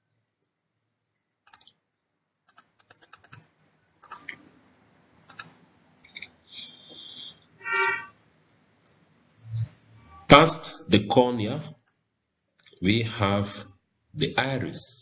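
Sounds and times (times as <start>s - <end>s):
computer keyboard clicks: 1.5s - 1.8s, 2.5s - 4.5s, 5.2s - 6.3s
brief pitched tone: 6.6s - 8.1s.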